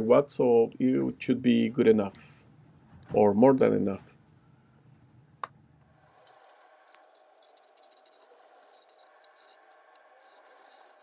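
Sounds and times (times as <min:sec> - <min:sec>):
compass scratching on wood: 0:06.1 - 0:11.0.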